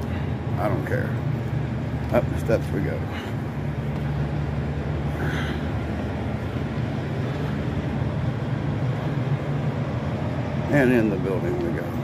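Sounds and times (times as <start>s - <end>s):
diesel engines idling: 0.0s - 12.0s.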